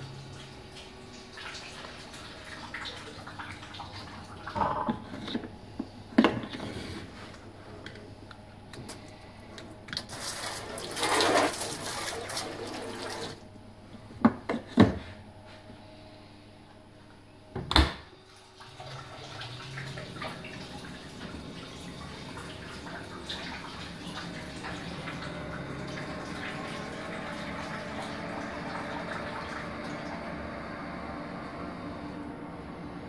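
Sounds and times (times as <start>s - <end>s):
water trickling and dripping: 0.0s - 4.5s, 18.4s - 30.3s.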